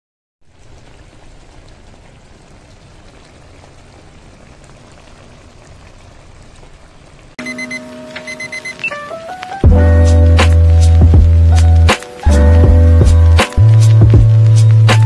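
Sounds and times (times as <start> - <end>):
intro music: 7.4 - 15.0.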